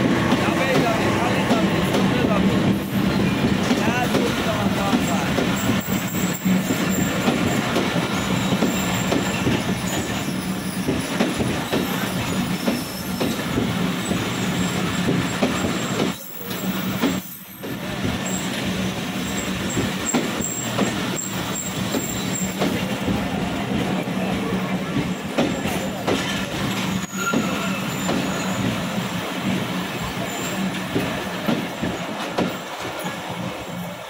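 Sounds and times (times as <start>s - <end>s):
train wheels rumbling on rails: 0.0s - 34.0s
high wheel squeals: 5.5s - 11.1s, 11.8s - 13.4s, 14.3s - 18.6s, 19.2s - 22.6s, 26.3s - 29.0s.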